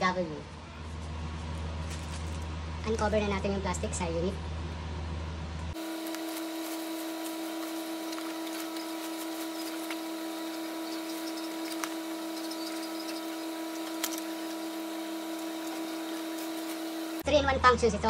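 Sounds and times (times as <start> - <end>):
loud steady hum: 0.0 - 18.0
plastic wrap crinkling: 5.8 - 12.4.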